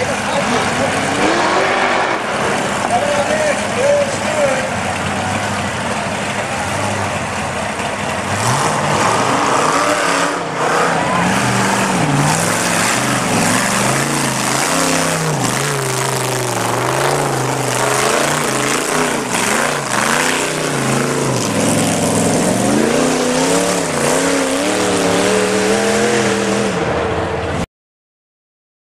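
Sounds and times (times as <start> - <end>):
buggy engine revving: 0.0 - 27.6.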